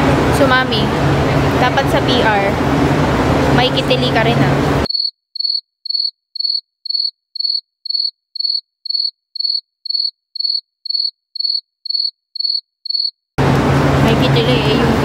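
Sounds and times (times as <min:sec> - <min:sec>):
cricket chirp: 0:04.9 - 0:13.2.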